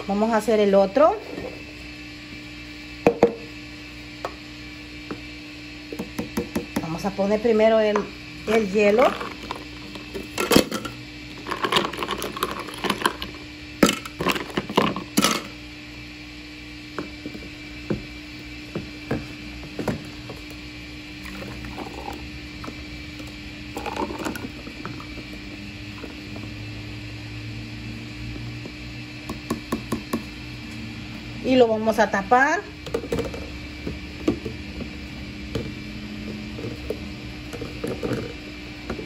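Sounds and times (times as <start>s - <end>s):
ice cubes clattering in plastic cup: 9.0s - 15.5s.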